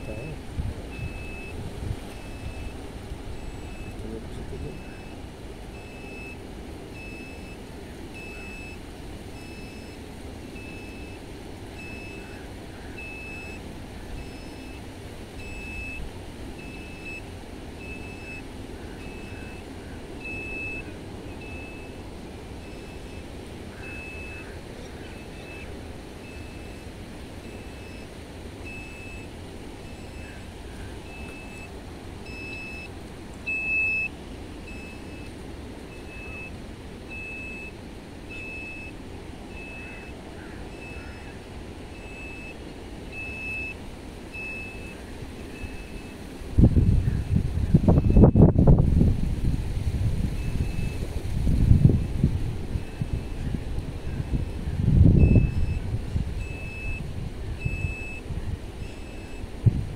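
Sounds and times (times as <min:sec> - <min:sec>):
short high beeps: 0:00.0 - 0:02.8, 0:03.4 - 0:05.2, 0:05.8 - 0:06.4, 0:07.0 - 0:07.6, 0:08.2 - 0:08.8, 0:09.4 - 0:10.0, 0:13.0 - 0:13.6, 0:14.2 - 0:14.8, 0:15.4 - 0:16.0, 0:20.2 - 0:22.0, 0:23.8 - 0:24.4, 0:28.7 - 0:29.3, 0:31.0 - 0:32.9, 0:33.5 - 0:34.1, 0:34.7 - 0:35.3, 0:35.9 - 0:40.1, 0:41.9 - 0:46.2, 0:55.2 - 0:55.8, 0:56.4 - 0:57.0, 0:57.6 - 0:58.2.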